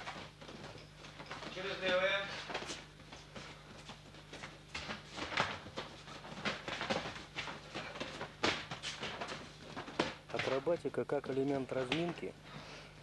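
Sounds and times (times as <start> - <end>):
footsteps: 0.0 - 12.8
steady low hum: 0.0 - 13.0
bodies landing on gym mats: 3.9 - 10.8.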